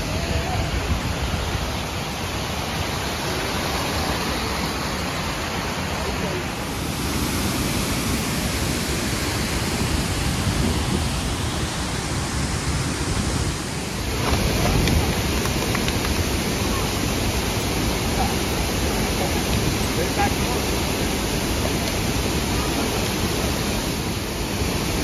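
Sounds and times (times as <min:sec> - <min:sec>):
waterfall rushing water: 0:00.0 - 0:25.0.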